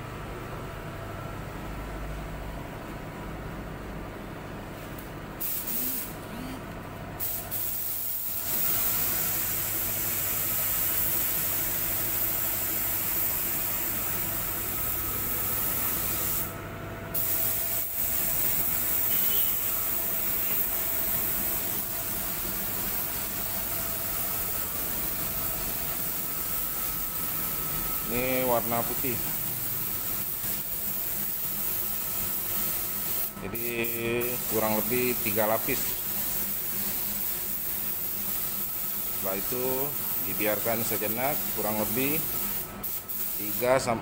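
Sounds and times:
steady low hum: 0.0 - 31.3
paint spray gun hissing: 5.4 - 6.2, 7.2 - 14.6, 15.2 - 16.5, 17.2 - 43.6.

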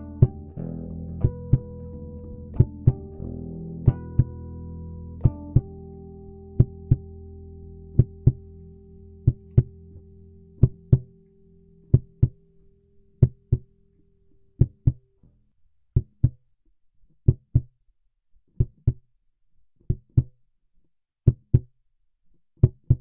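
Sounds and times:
slow heartbeat thumps: 6.6 - 7.1, 9.3 - 9.8.

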